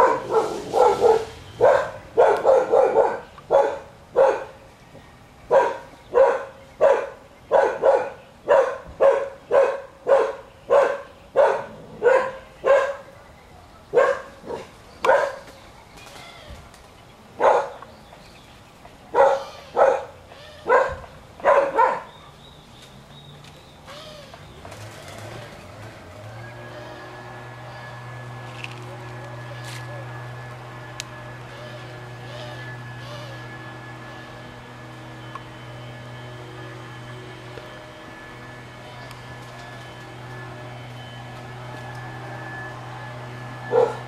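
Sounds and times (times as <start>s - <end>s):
dog barking: 0.0s - 4.6s, 5.5s - 13.1s, 13.9s - 15.4s, 17.4s - 17.8s, 19.1s - 22.1s, 43.7s - 44.0s.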